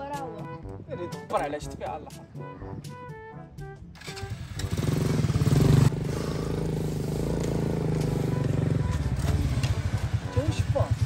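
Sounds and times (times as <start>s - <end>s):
small motorcycle engine revving: 4.0s - 11.0s.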